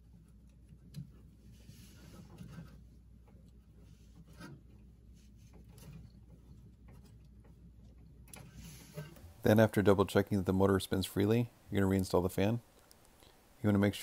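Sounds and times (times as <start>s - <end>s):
rustling of electrical wires: 0.0s - 11.5s
soft clicks: 12.7s - 13.4s.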